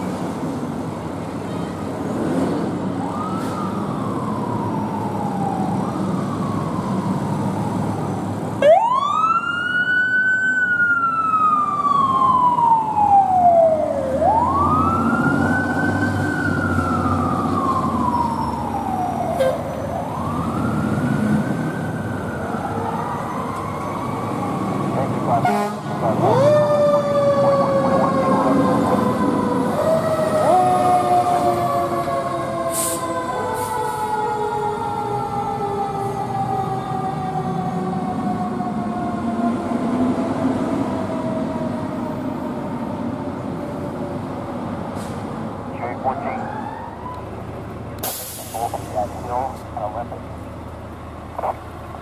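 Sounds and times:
fire engine siren wailing: 2.7 - 52.0
truck engine rumble: 42.0 - 52.0.

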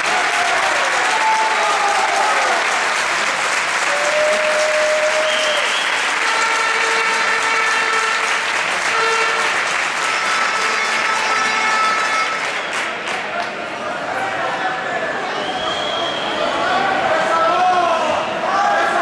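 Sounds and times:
crowd applauding: 0.0 - 13.9.

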